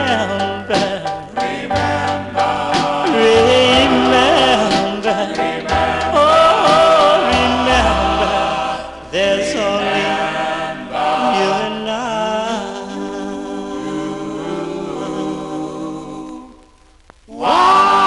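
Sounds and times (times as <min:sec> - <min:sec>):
low bass notes: 0:00.0 - 0:09.8
vocal group singing in harmony: 0:00.0 - 0:18.0.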